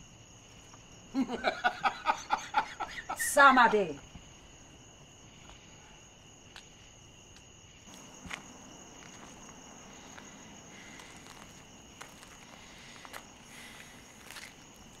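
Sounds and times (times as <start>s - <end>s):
crickets chirring: 0.0s - 15.0s
soft footsteps on grass: 7.9s - 15.0s.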